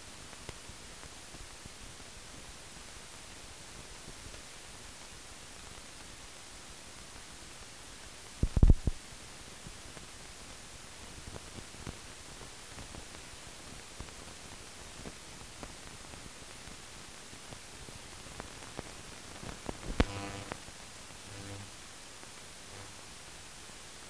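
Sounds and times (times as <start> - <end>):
film soundtrack hiss: 0.0 - 24.0
faint clicks: 18.4 - 21.7
brief buzz: 20.0 - 20.6, 21.2 - 21.7, 22.7 - 23.0.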